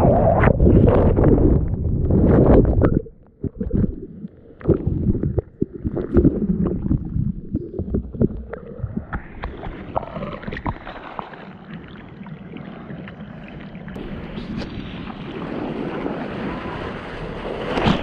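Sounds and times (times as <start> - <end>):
water splashing and sloshing: 0.0 - 18.0
gurgling knocks underwater: 0.8 - 11.0.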